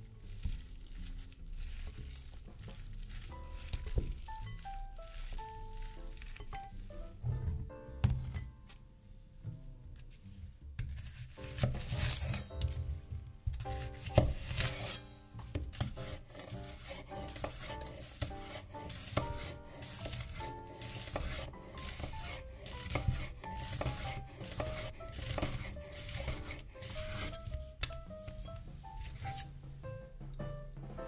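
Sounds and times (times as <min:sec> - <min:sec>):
knife slicing onion on board: 0:10.8 - 0:12.8, 0:13.5 - 0:28.4.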